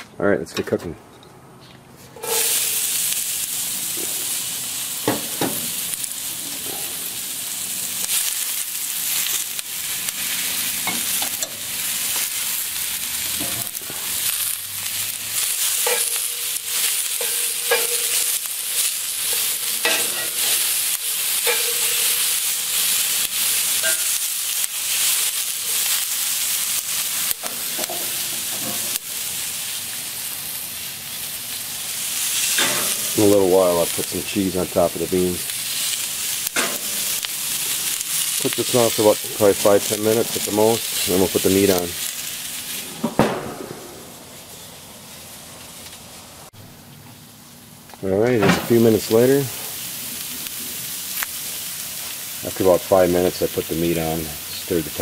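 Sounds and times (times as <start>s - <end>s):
tongs scraping against iron pan: 2.1s - 4.4s, 6.3s - 7.2s, 13.1s - 25.0s, 32.4s - 34.2s, 35.8s - 43.0s
onions and peppers sizzling in skillet: 2.1s - 55.0s.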